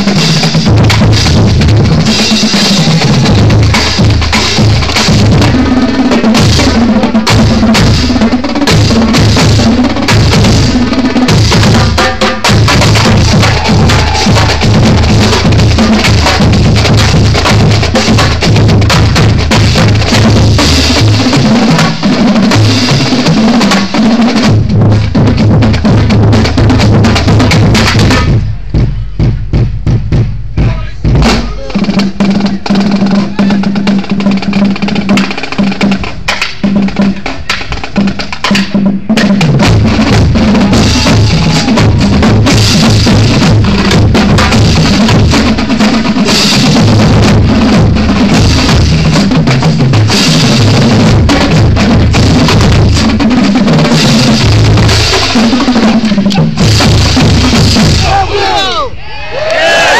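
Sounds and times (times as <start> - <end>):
marching drumline playing: 0.0 - 59.0
crowd cheering: 12.8 - 17.2, 40.2 - 42.2, 57.9 - 59.9.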